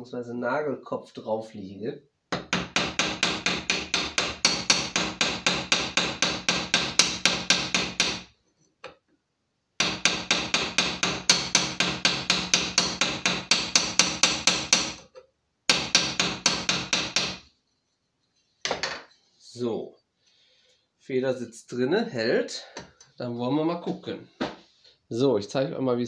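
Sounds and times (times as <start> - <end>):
small hammer tapping metal: 2.3 - 8.2, 9.8 - 17.5.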